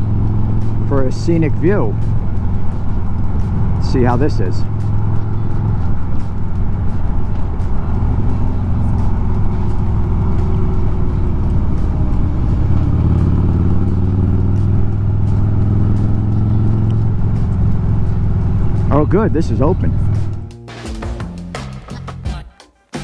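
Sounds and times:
motorcycle engine running: 0:00.0 - 0:21.9.

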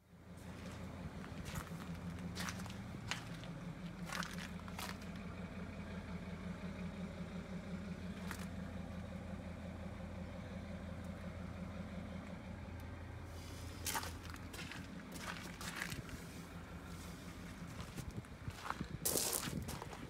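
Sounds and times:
low mechanical hum: 0:00.1 - 0:20.0
footsteps on gravel: 0:00.4 - 0:05.2, 0:08.2 - 0:08.5, 0:13.6 - 0:20.0.

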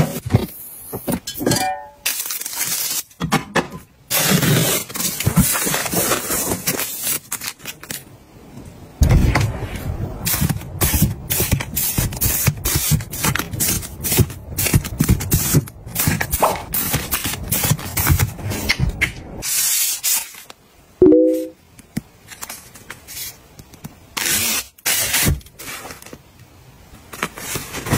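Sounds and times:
plastic film crinkling: 0:02.1 - 0:03.2.

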